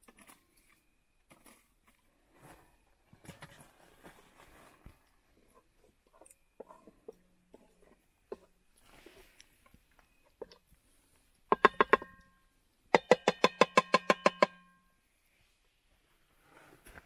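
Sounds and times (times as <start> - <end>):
sharp ringing taps: 11.5 - 14.9.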